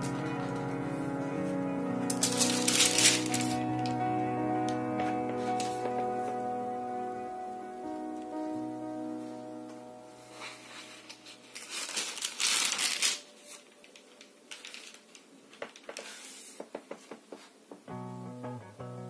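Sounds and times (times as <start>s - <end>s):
photo album pages rustling: 0.0s - 6.4s, 10.3s - 17.5s
background music: 0.0s - 14.5s, 17.9s - 19.0s.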